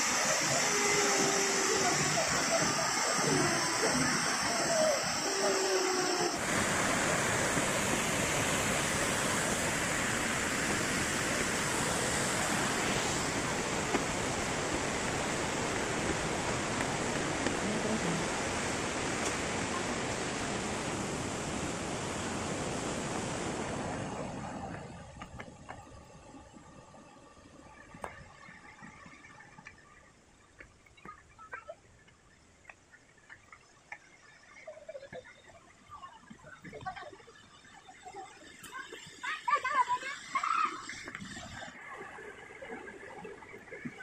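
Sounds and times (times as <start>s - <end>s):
waterfall crashing: 0.0s - 24.4s.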